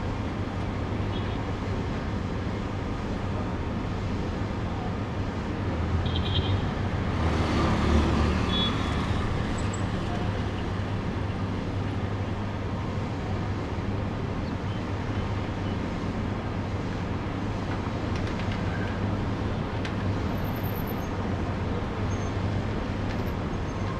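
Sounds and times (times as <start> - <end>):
road traffic rumble: 0.0 - 23.9.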